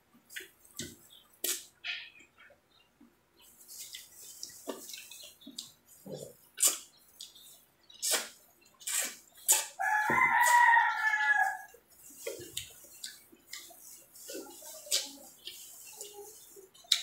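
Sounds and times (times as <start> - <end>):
rooster crowing: 9.8 - 11.8.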